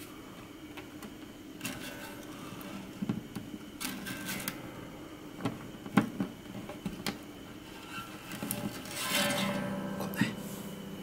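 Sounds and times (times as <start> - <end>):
guitar string scratching: 1.6 - 3.0, 3.8 - 4.6, 7.7 - 10.8.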